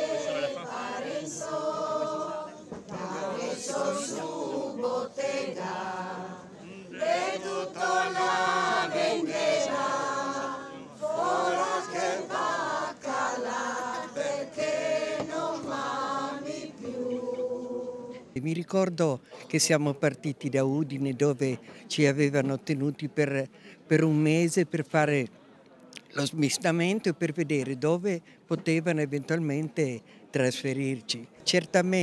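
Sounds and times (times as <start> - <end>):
crowd singing unaccompanied: 0.0 - 18.4.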